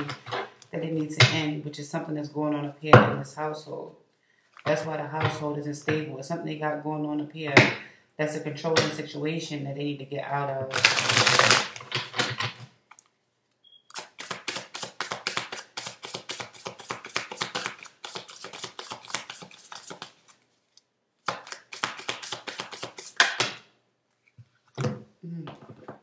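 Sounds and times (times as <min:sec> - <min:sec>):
cards being shuffled: 0:10.7 - 0:12.7, 0:13.9 - 0:23.6.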